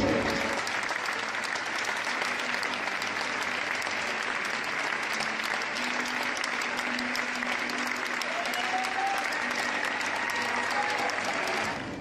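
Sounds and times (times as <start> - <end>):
large crowd applauding: 0.0 - 12.0.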